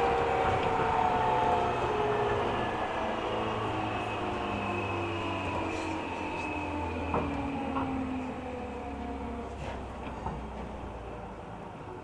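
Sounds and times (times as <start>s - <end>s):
train motor whine: 0.0s - 9.1s
train rumbling: 0.0s - 12.0s.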